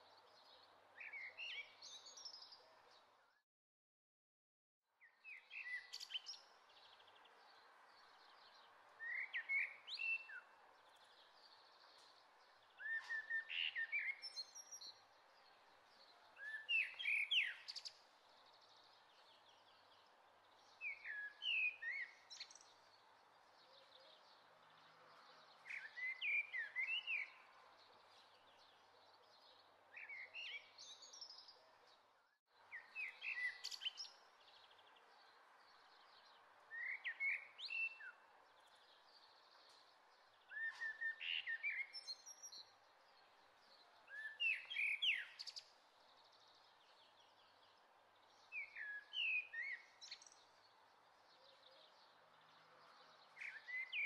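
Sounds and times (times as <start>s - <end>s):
songbird chirping: 0.0s - 3.4s, 4.9s - 54.0s.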